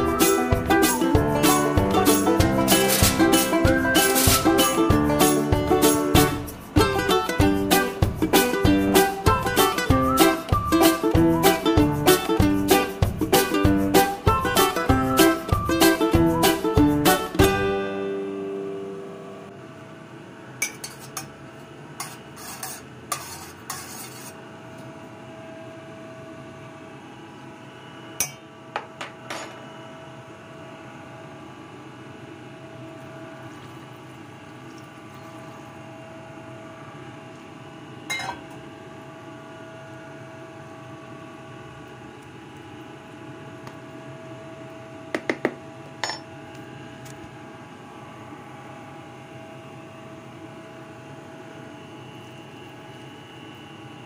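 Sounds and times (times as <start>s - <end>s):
music: 0.0s - 19.5s
steady hum: 0.0s - 22.0s.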